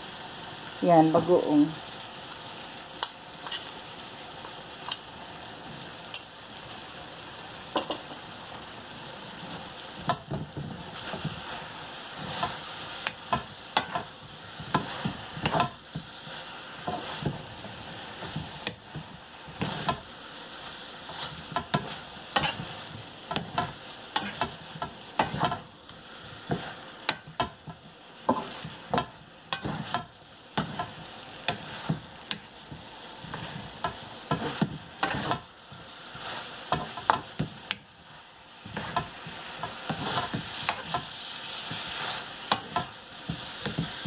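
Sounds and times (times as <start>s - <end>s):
vegetables sizzling in a pan: 0.0s - 44.0s
spatula scraping and knocking pan: 9.4s - 38.0s, 38.6s - 44.0s.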